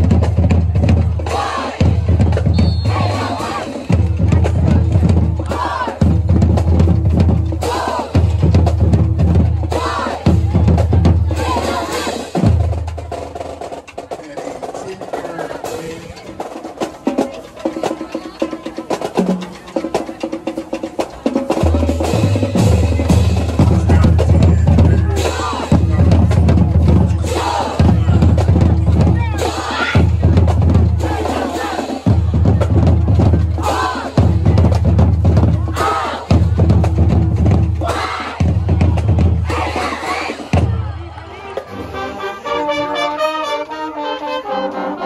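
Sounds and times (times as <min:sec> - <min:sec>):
drums: 0:00.0 - 0:44.0
marching band playing: 0:00.0 - 0:45.0.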